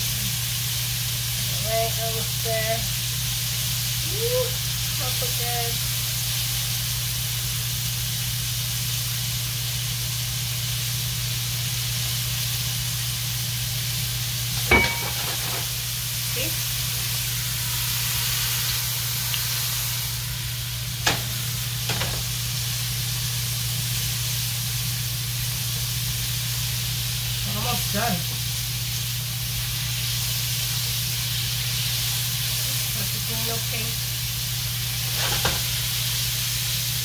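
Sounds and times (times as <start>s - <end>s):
meat sizzling in a frying pan: 0.0s - 37.0s.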